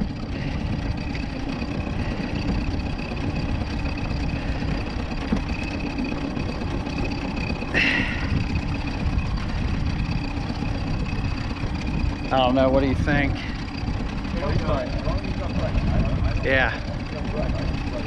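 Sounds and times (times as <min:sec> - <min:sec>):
water slapping against boat: 0:00.0 - 0:18.0
wind buffeting microphone: 0:00.0 - 0:18.0.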